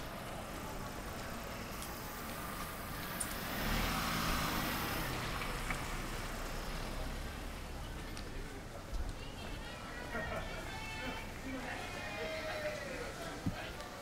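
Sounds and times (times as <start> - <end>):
tyre hiss on wet paving: 0.4 - 7.1.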